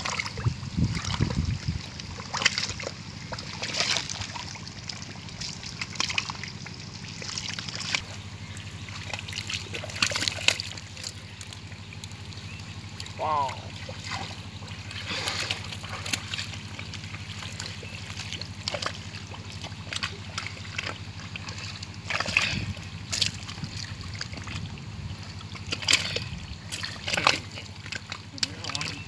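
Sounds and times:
mud and water squelching: 0.0s - 29.0s
sharp water splashes: 0.0s - 29.0s
steady low hum: 0.0s - 29.0s.

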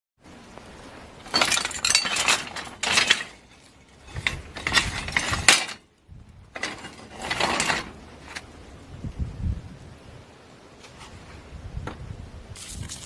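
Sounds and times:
scrap metal clinking and rattling: 1.2s - 8.5s.

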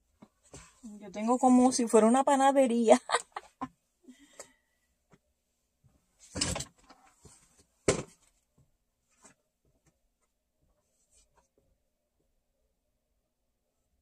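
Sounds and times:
knocks of objects set down: 7.8s - 8.3s.

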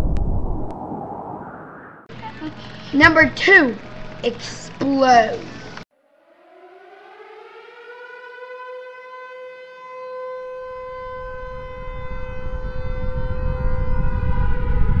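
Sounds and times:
deep explosion rumble: 0.0s - 2.2s, 11.2s - 15.0s
air-raid siren wailing: 5.7s - 15.0s.

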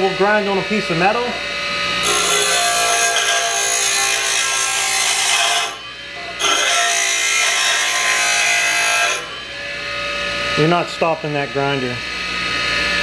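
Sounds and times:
grinder motor hum: 0.0s - 13.0s
grinder grinding metal rod: 2.0s - 10.9s.

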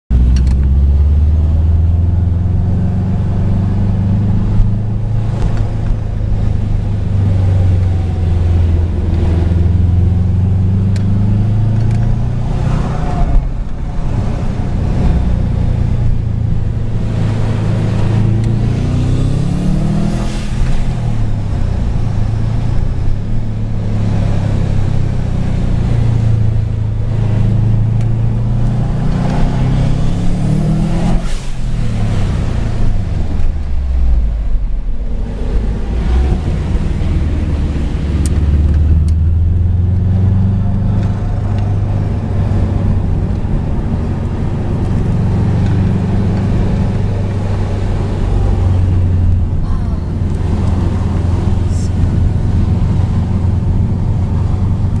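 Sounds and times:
car engine and road noise: 0.1s - 55.0s.

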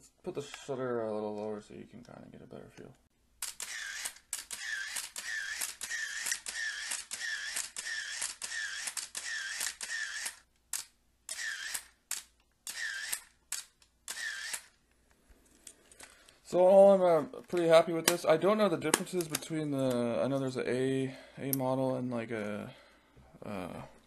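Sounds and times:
camera shutter firing: 3.4s - 14.7s
film winder motor whirring: 3.6s - 10.4s.

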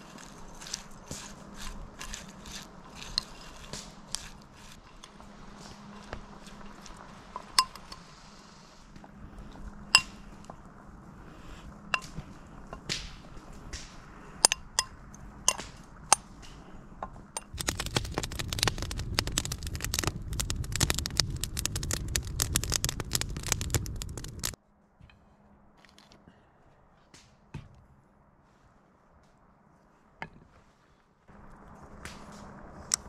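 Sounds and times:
dense crackling noise: 0.0s - 24.6s, 31.3s - 33.0s.

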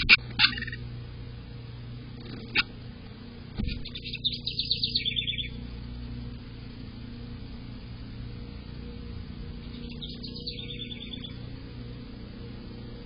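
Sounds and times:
wren singing bubbly song: 0.0s - 0.9s, 3.8s - 5.7s, 9.6s - 12.3s
low hum: 0.0s - 13.0s.

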